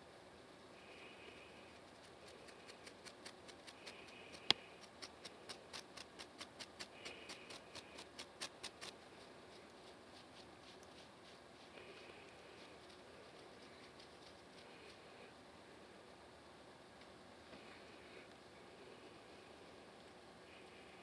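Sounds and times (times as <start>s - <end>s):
comb scratching scalp: 1.7s - 15.1s.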